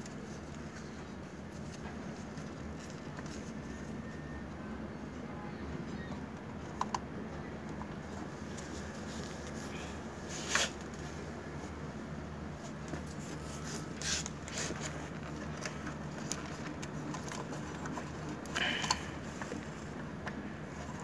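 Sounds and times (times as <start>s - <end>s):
wires scraping and rustling: 8.0s - 12.0s, 12.6s - 21.0s.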